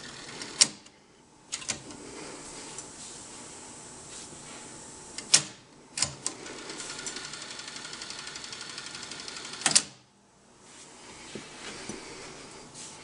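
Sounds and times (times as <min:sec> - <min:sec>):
tape rewinding whir: 0:00.0 - 0:00.8, 0:06.2 - 0:09.8.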